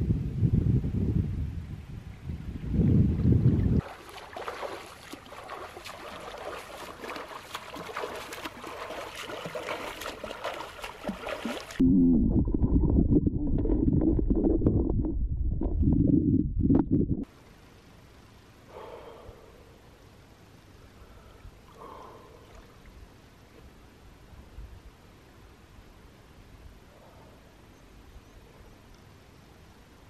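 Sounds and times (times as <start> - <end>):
wind buffeting microphone: 0.0 - 3.9, 10.8 - 17.3
water splashing from swimming: 3.8 - 15.8
underwater churning and bubbling: 10.2 - 17.3.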